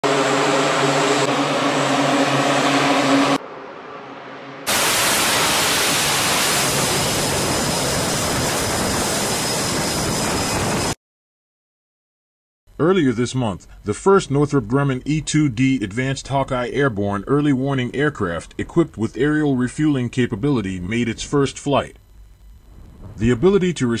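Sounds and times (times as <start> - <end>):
turboprop engines droning: 0.0 - 11.0, 12.8 - 24.0
jet catapult launch rushing: 4.6 - 9.1.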